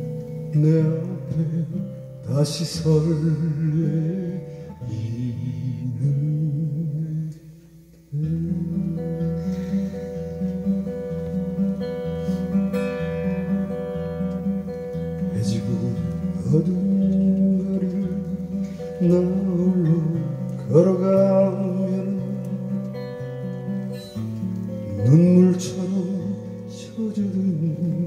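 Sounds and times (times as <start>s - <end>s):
man singing: 0.0s - 9.5s, 15.2s - 24.1s, 24.8s - 28.0s
acoustic guitar: 0.0s - 28.0s.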